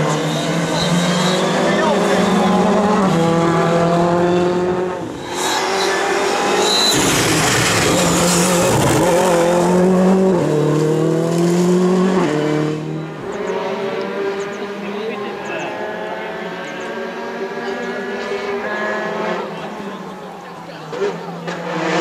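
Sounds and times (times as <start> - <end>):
rally car engine at high revs: 0.0 - 22.0.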